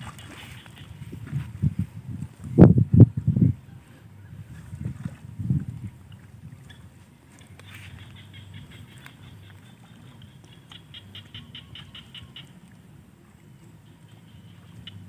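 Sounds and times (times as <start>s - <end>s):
frogs calling with rapid clicks: 7.5s - 12.6s, 13.8s - 15.0s.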